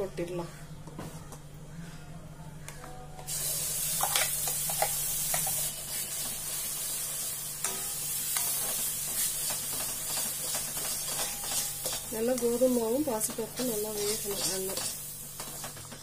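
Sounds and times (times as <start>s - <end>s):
paste sizzling in hot ghee: 3.3s - 15.9s
spatula scraping metal pan: 9.2s - 12.5s, 13.6s - 15.7s.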